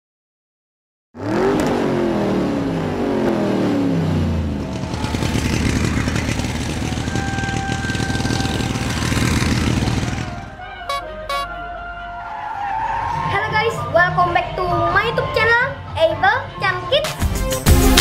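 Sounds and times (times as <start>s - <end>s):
racing engine buzzing: 1.2s - 11.5s.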